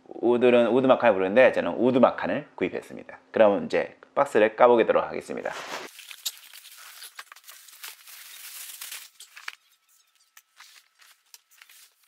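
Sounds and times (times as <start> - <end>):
plastic wrapping crinkling: 5.8 - 12.0.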